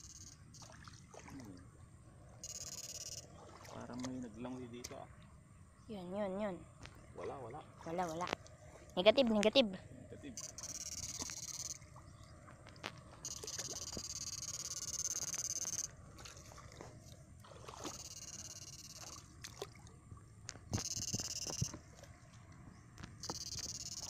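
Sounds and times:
water sloshing and splashing: 0.5 - 1.8, 3.2 - 4.4, 6.8 - 9.1, 15.6 - 20.8.

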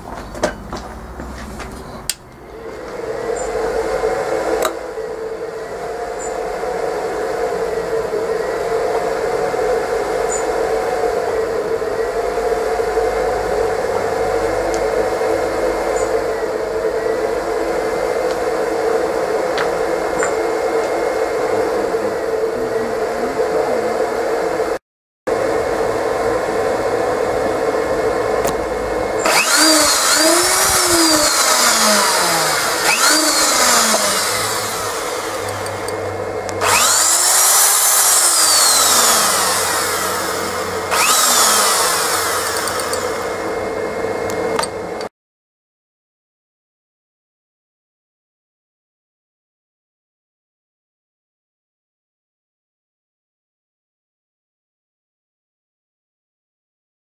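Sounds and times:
cooling fan with electrical hum: 0.0 - 24.8, 25.4 - 45.1
electric drill whirring: 2.6 - 21.5, 27.6 - 45.1.

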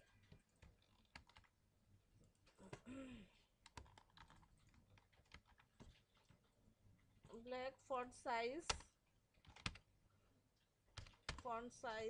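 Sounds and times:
keyboard keystrokes: 9.4 - 9.8.

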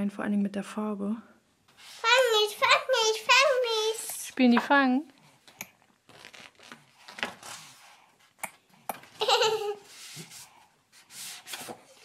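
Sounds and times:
paper pages rustling: 6.0 - 8.0.

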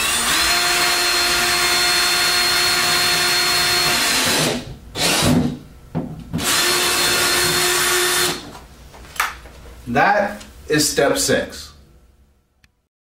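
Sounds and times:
drill motor whining: 0.0 - 5.6, 6.4 - 8.4.

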